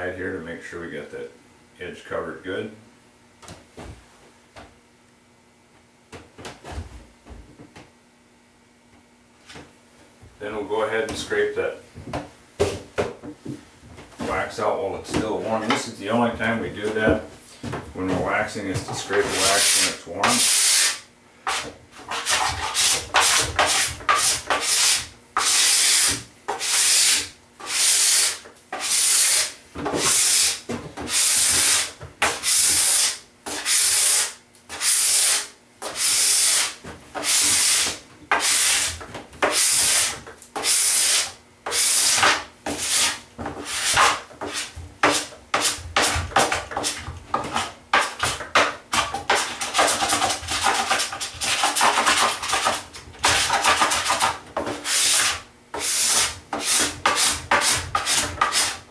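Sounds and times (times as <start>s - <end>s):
wax scraper on snowboard: 18.8s - 58.9s.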